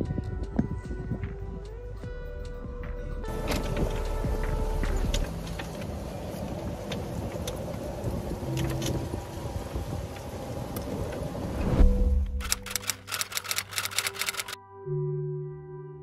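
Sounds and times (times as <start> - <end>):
cart motor rumbling: 3.3 - 14.6
rapid typewriter-style clicking: 12.4 - 14.6
rattles and clicks: 12.4 - 14.6.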